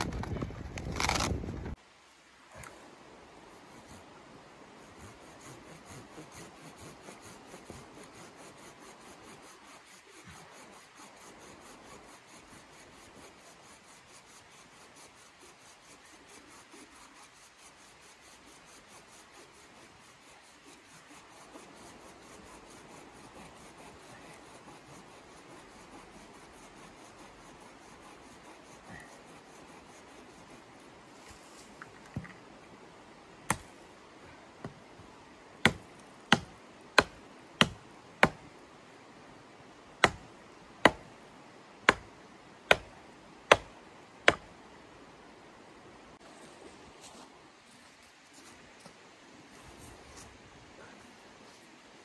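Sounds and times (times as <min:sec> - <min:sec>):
hand tool rasping wood: 0:04.9 - 0:30.7, 0:35.6 - 0:38.4.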